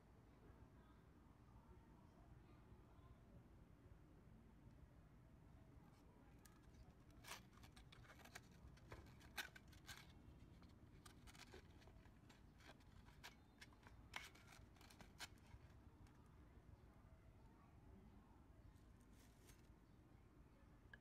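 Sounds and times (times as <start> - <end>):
crackles of stiff abrasive: 6.5 - 16.2
sanding belt rustling and scraping: 7.2 - 15.7.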